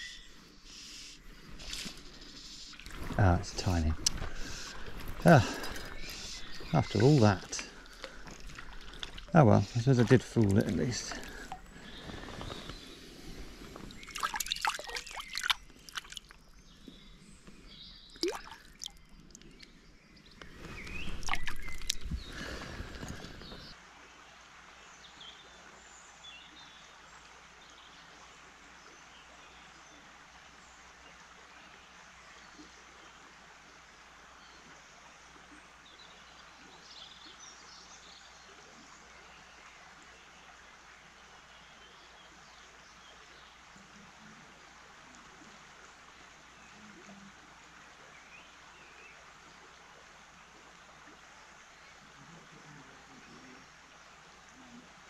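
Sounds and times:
faint bird chirps: 0.0 - 8.1
river water sloshing and splashing: 1.2 - 19.7, 20.4 - 26.2
river water rushing: 2.8 - 16.3.

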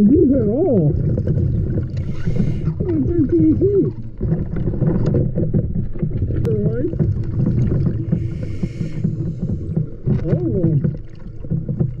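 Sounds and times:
underwater diver breathing bubbles: 1.0 - 2.9, 7.1 - 10.2.

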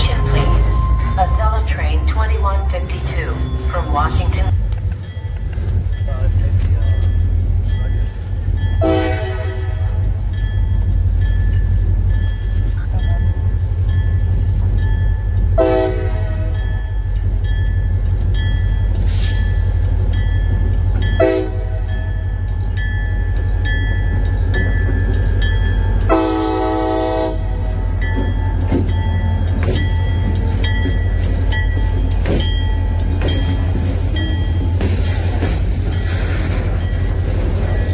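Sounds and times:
bell ringing: 0.0 - 4.5, 27.6 - 35.1
low rumble of train: 0.0 - 37.9
locomotive horn blasts: 8.8 - 10.1, 15.6 - 16.6, 21.2 - 22.0, 26.1 - 27.8.

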